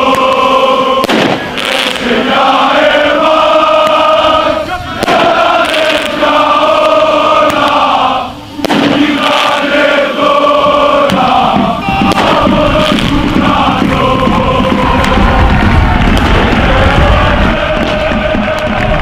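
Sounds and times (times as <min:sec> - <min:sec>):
crowd chanting: 0:00.0 - 0:19.0
sharp bangs: 0:01.0 - 0:02.6, 0:03.7 - 0:07.9, 0:08.5 - 0:10.0, 0:11.0 - 0:19.0.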